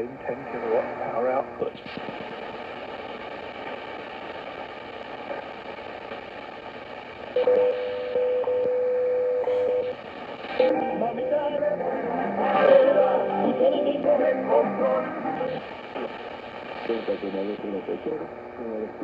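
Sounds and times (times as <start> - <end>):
radio static and hiss: 0.0 - 19.0
steady radio tone: 9.2 - 19.0
music over radio: 10.5 - 18.0.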